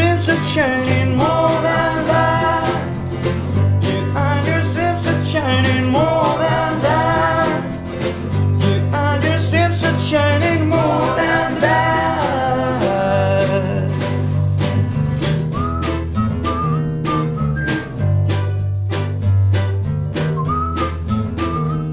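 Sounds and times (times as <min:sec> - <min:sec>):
person singing melody: 0:00.0 - 0:14.9
acoustic guitars strummed: 0:00.0 - 0:21.9
percussion beat: 0:00.0 - 0:21.9.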